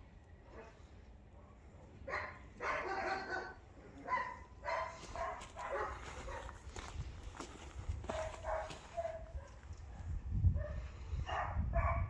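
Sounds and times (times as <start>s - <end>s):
dog barking: 1.4s - 6.6s, 8.1s - 9.7s, 10.6s - 12.0s.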